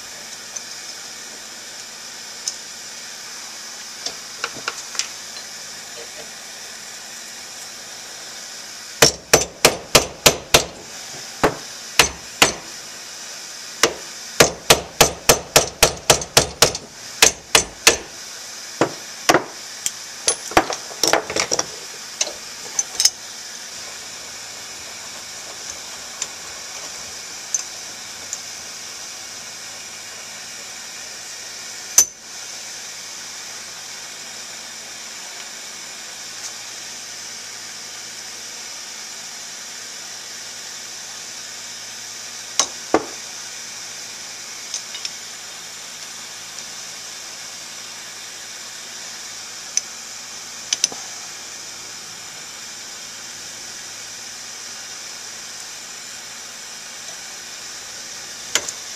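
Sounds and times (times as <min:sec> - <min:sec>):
steady hiss: 0:00.0 - 0:58.9
hammer striking metal punch: 0:09.0 - 0:10.8, 0:11.4 - 0:12.7, 0:13.8 - 0:18.1, 0:42.6 - 0:43.2.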